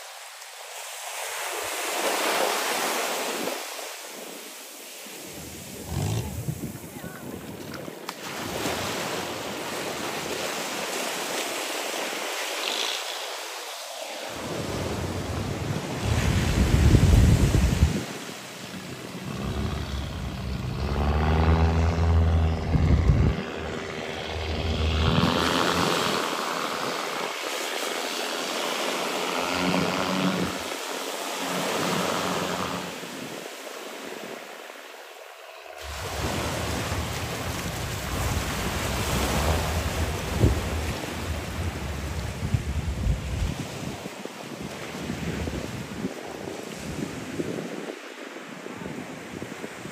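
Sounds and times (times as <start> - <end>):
surf on beach: 0.0 - 49.9
wind on microphone: 5.3 - 8.9, 14.3 - 27.9, 35.8 - 49.9
engine droning: 18.6 - 26.9, 35.8 - 42.9.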